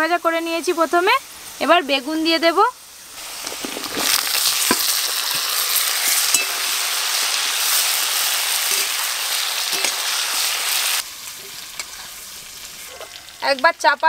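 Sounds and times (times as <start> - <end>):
vegetables sizzling in hot oil: 0.0 - 14.0
metal spatula scraping wok: 3.4 - 13.4.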